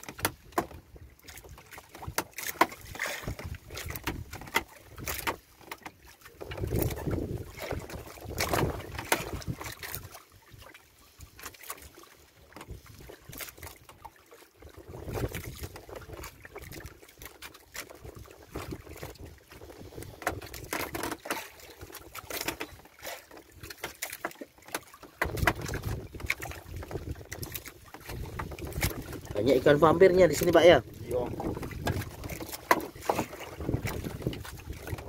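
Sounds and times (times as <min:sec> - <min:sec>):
water lapping against hull: 0:00.0 - 0:35.0
wind buffeting microphone: 0:06.4 - 0:10.0, 0:25.2 - 0:35.0.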